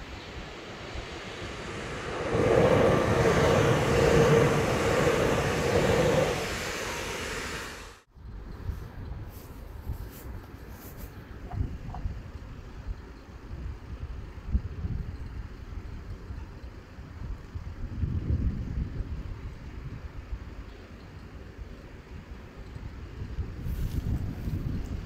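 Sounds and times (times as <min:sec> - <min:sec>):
low rumble: 0:00.0 - 0:08.1
train wheel and rail noise: 0:00.0 - 0:17.8.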